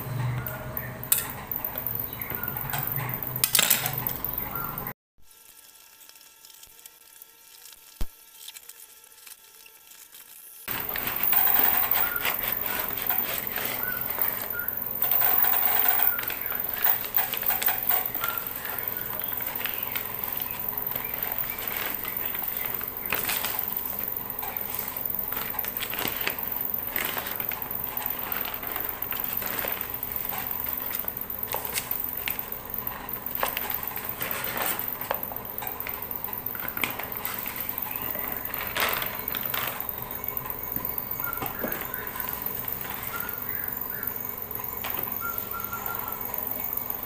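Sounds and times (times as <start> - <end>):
paper crinkling and rustling: 5.3 - 14.7, 15.8 - 40.3.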